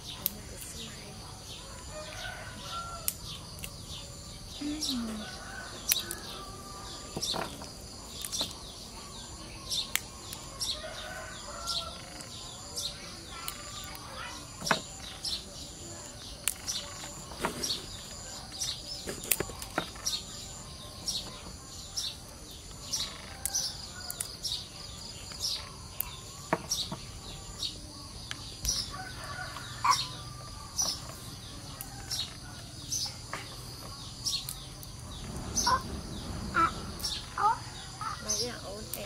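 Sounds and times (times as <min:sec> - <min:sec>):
small birds chirping: 0:00.0 - 0:39.0.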